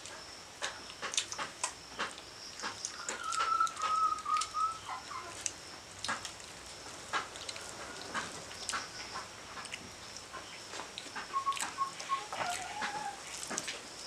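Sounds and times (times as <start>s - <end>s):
whistled call: 3.0s - 5.3s, 11.2s - 13.2s.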